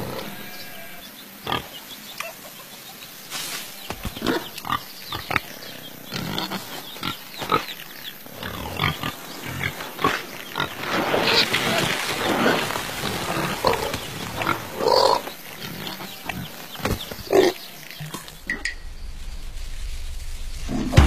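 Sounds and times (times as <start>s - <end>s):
pigs grunting: 0.0s - 1.7s, 4.0s - 18.6s.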